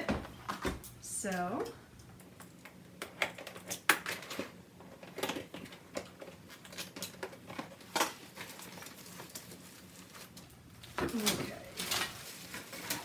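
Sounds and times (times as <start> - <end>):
plastic packaging rustling: 3.2 - 13.0.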